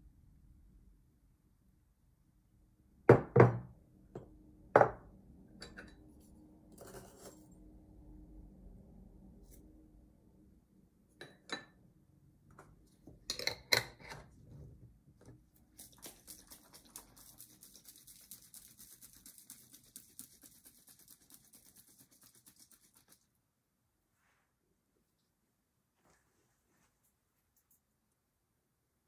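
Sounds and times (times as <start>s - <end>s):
glass jar shaken with liquid: 15.8s - 23.2s.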